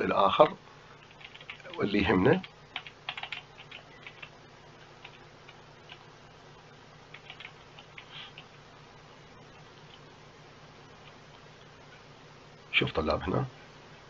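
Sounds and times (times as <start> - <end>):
computer mouse clicking: 1.1 - 1.8, 2.7 - 4.4, 7.1 - 8.6.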